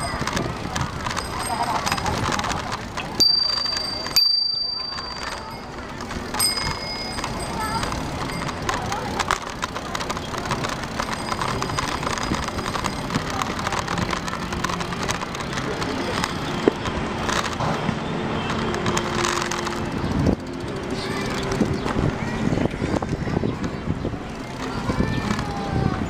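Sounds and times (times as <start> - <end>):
wind noise: 0.0 - 4.2, 19.8 - 26.0
bicycle rattling and clicking: 0.0 - 26.0
bicycle tyre noise: 0.0 - 26.0.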